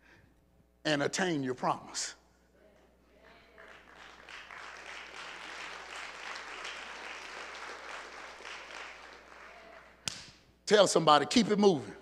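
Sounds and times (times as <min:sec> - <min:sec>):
congregation applauding: 0:03.3 - 0:10.2.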